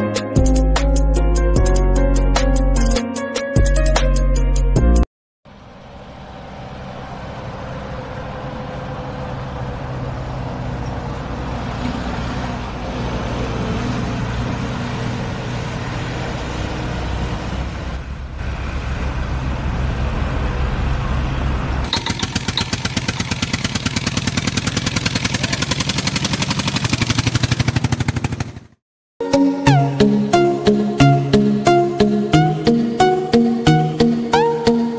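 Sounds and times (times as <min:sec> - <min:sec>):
engine running: 0:05.5 - 0:28.8.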